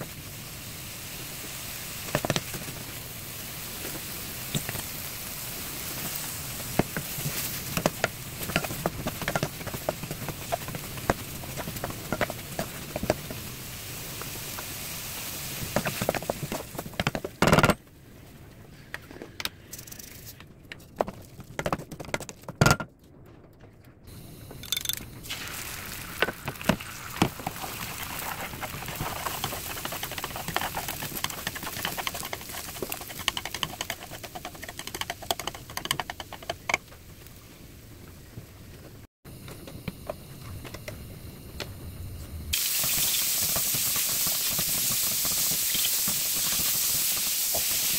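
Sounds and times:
frying crackle: 0.0 - 17.2, 25.2 - 39.1, 42.5 - 47.9
spatula scraping frying pan: 28.4 - 35.6.

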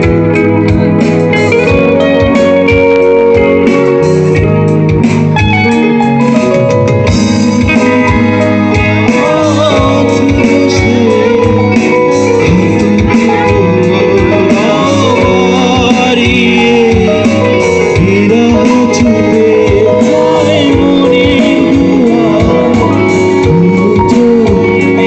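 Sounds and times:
live rock band playing: 0.0 - 25.0
man singing: 7.5 - 25.0.

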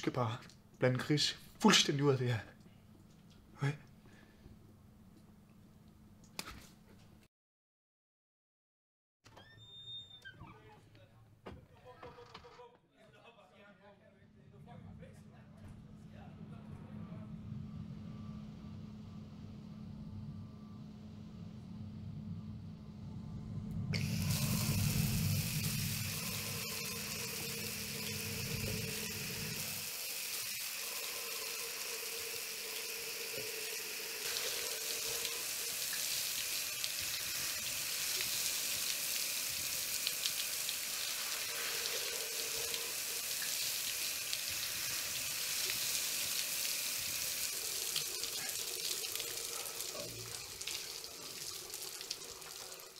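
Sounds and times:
low hum: 14.3 - 29.9
shower running: 23.9 - 52.9.

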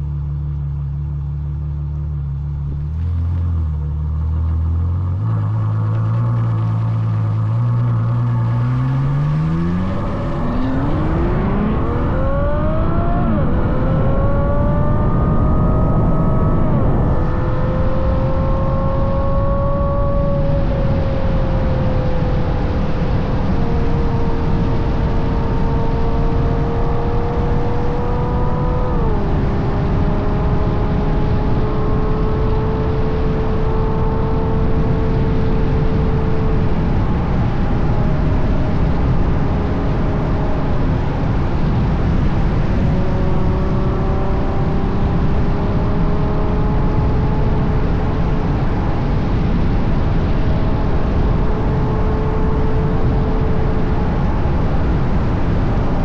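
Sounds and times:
car engine accelerating: 0.0 - 56.0
wind and road rumble: 0.0 - 56.0.

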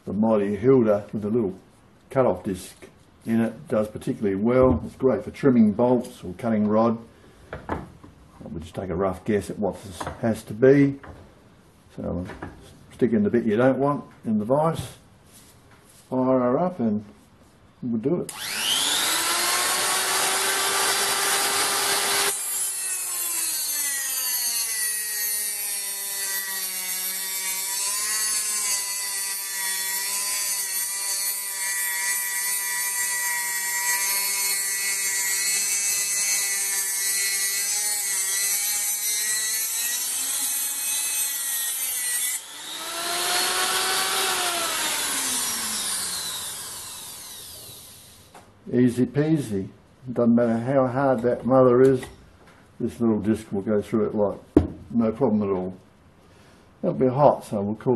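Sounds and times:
rotary tool cutting bolt: 18.3 - 48.3.

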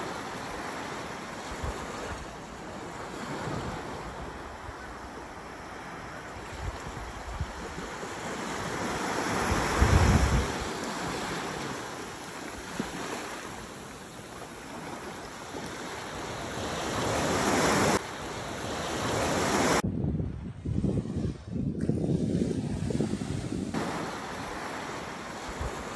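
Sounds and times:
sea waves breaking: 0.0 - 19.8, 20.7 - 25.9
wind rumbling on microphone: 8.7 - 11.3, 19.0 - 25.9.

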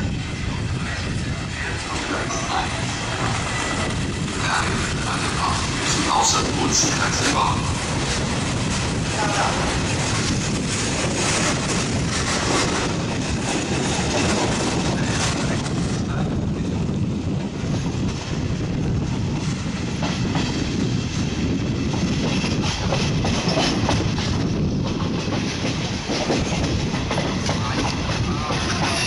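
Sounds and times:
train running noise: 0.0 - 29.0
wheels clacking over rail joints: 22.0 - 29.0.

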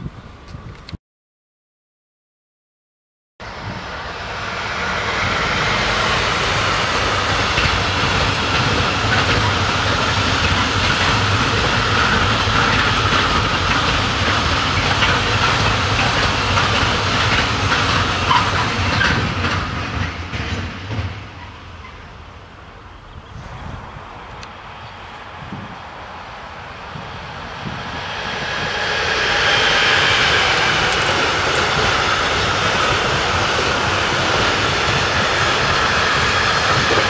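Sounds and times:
train wheels rumbling on rail: 3.4 - 37.0.

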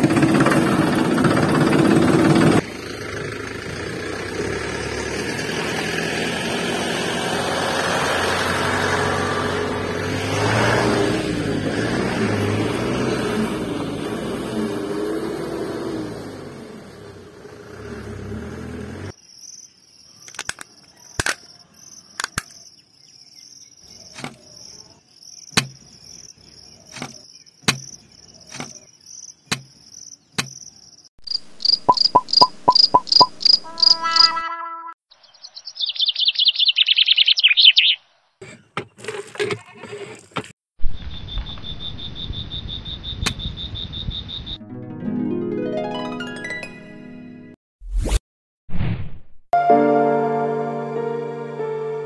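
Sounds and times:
insects chirping: 19.1 - 34.3, 40.8 - 44.6
sharp clicks and taps: 29.5 - 29.7
music: 44.6 - 47.6, 49.6 - 52.0.

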